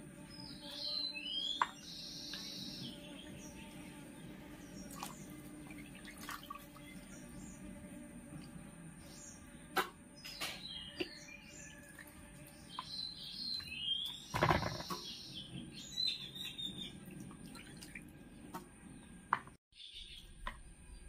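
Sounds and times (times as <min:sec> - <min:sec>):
birds chirping: 0:00.2 - 0:21.0
faint water sounds: 0:02.3 - 0:09.0, 0:11.0 - 0:13.7, 0:16.2 - 0:19.3.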